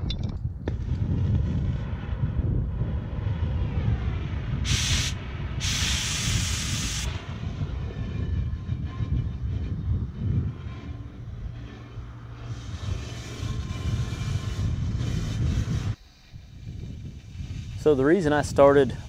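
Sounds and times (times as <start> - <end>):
cutting torch flame rushing: 0.7 - 19.0
loud hiss bursts: 4.6 - 7.2.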